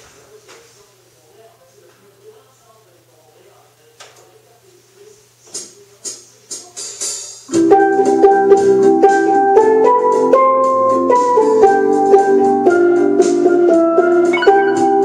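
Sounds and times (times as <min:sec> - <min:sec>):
steel pans playing melody: 0:14.3 - 0:15.0.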